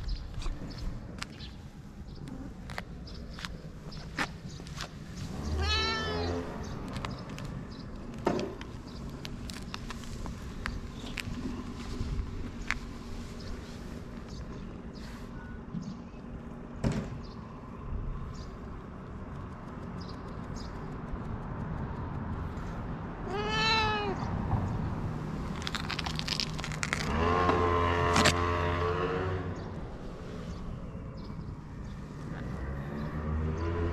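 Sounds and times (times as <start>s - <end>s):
cat meowing: 5.4s - 6.5s, 23.2s - 24.3s.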